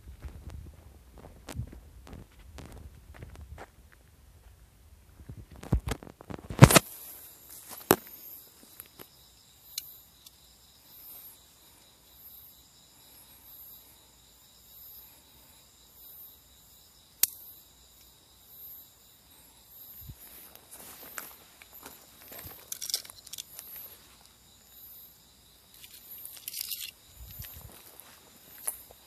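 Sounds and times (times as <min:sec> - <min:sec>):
faint high insect chirp: 0:00.0 - 0:29.0
insects shrilling at night: 0:06.4 - 0:29.0
handling knocks and clicks: 0:22.2 - 0:23.8, 0:25.8 - 0:27.7.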